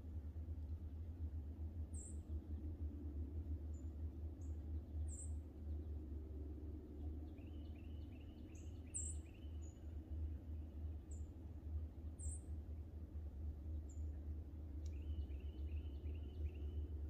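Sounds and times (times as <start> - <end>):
steady low rumble: 0.0 - 17.0
small birds chirping: 7.2 - 10.0, 14.8 - 17.0.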